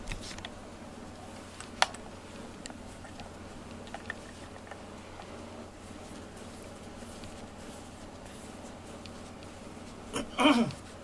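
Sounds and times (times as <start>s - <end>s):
clicks of plastic brush: 1.3s - 10.1s.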